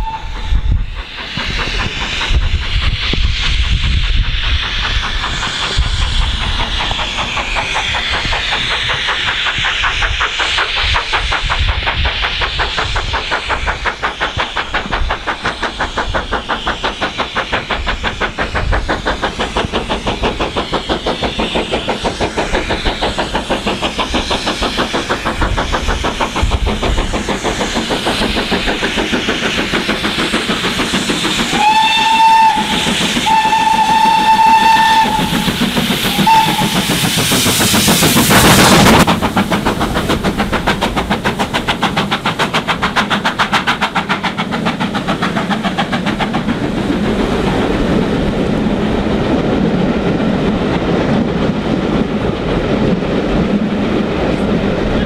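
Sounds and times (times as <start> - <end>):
steam whistle: 0.0 - 0.6, 31.5 - 36.9
steam locomotive exhaust beats: 0.0 - 55.0
train coaches rolling by: 0.0 - 55.0.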